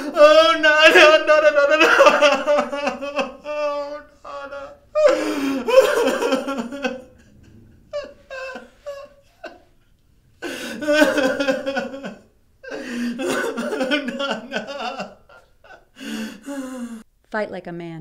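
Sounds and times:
man wailing: 0:00.0 - 0:09.6
man sobbing: 0:00.0 - 0:17.0.

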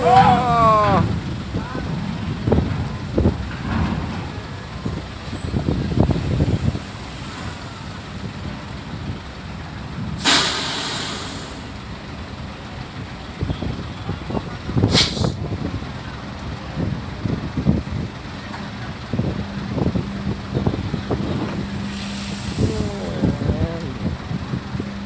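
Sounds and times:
diesel vehicles idling: 0:00.0 - 0:25.0
air brake hiss: 0:10.2 - 0:11.7, 0:14.9 - 0:15.4, 0:21.8 - 0:22.8.

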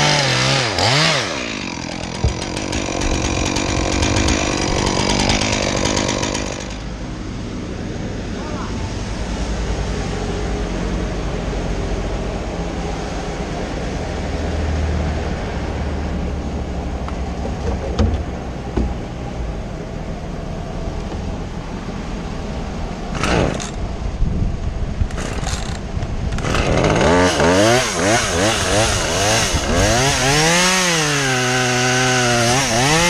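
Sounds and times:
chainsaw revving: 0:00.0 - 0:07.0, 0:23.1 - 0:23.8, 0:25.1 - 0:33.0
lift engine running: 0:00.8 - 0:06.9.

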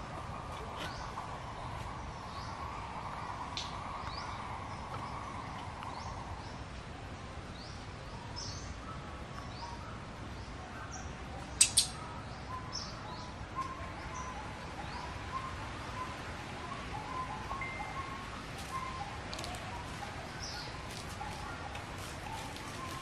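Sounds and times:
birds chirping: 0:00.0 - 0:23.0
steady outdoor hiss: 0:00.0 - 0:23.0
sharp clicks: 0:11.6 - 0:12.0.

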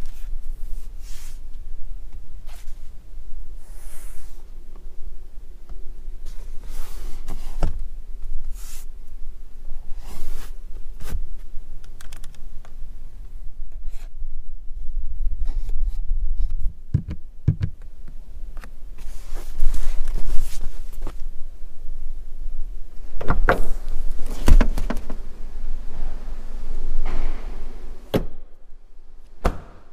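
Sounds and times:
plastic clicks and rubbing: 0:11.8 - 0:12.4.

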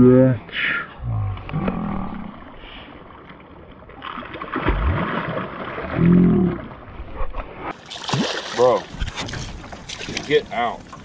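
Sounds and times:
fish splashing in water: 0:04.0 - 0:06.7, 0:07.7 - 0:10.4.

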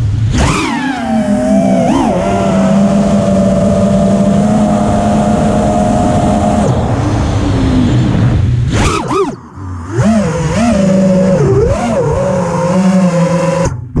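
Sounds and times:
drone motors whining: 0:00.0 - 0:13.9
rush of air: 0:01.3 - 0:10.4.

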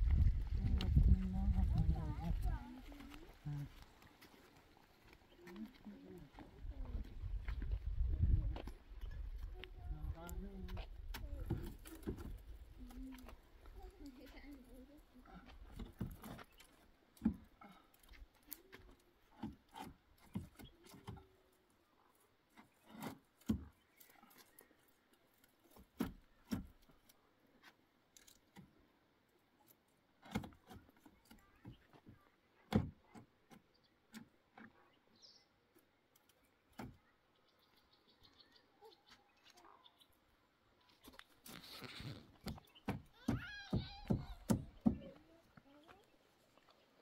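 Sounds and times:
faint knocks and taps: 0:42.4 - 0:46.0.

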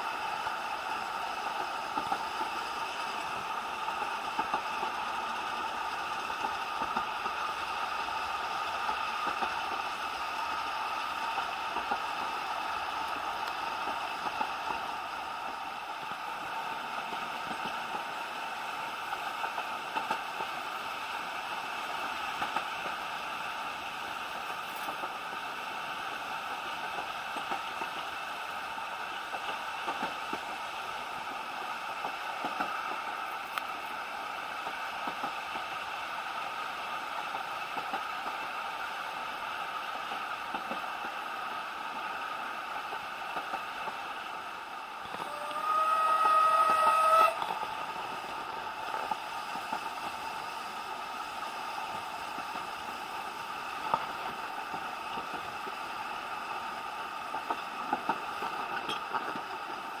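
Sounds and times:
railway carriage running noise: 0:00.0 - 1:00.0
wheels clicking on track: 0:00.0 - 1:00.0
steam locomotive whistle: 0:45.0 - 0:48.2.

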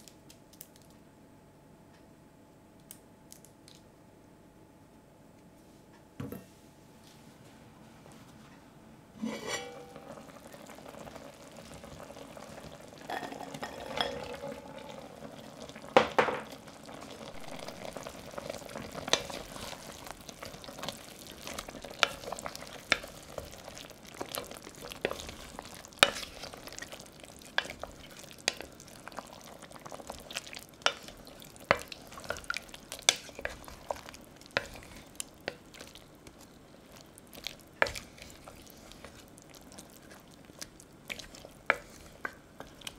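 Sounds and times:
faint sizzle: 0:05.6 - 0:42.9
wooden spoon knocking pot: 0:15.9 - 0:16.6.

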